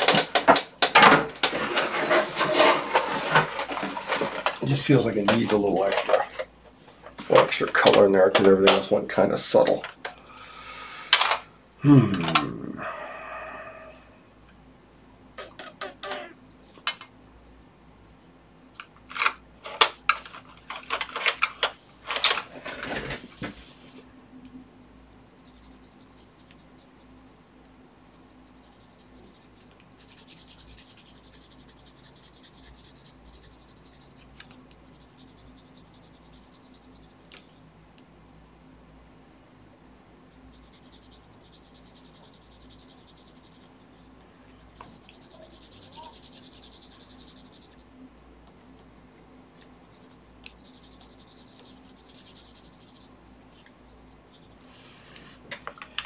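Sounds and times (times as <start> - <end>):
drawing supplies clattering: 0.0 - 6.5
colored pencil scratching on paper: 1.5 - 6.1, 24.8 - 37.3, 38.2 - 39.4, 40.0 - 43.8, 44.7 - 47.9, 48.5 - 53.6.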